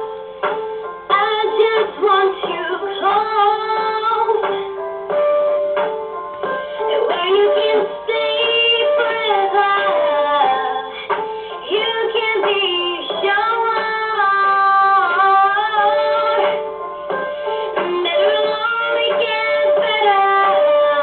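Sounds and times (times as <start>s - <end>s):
instrumental accompaniment: 0.0s - 21.0s
woman singing: 1.1s - 4.8s, 6.8s - 16.7s, 17.7s - 21.0s.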